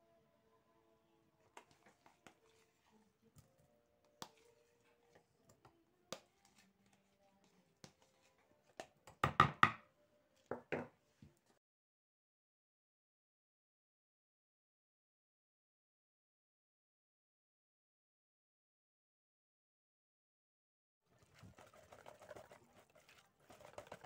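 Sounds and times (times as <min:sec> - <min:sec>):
plastic tub and whisk knocking bowl: 0:08.8 - 0:09.8, 0:10.5 - 0:11.0.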